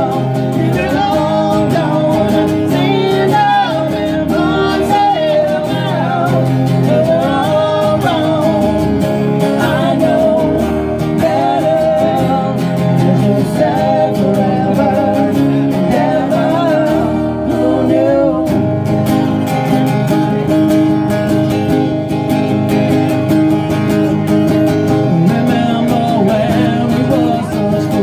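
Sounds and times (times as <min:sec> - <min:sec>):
person singing: 0:00.0 - 0:18.9, 0:25.0 - 0:28.0
acoustic guitars strumming: 0:00.0 - 0:28.0.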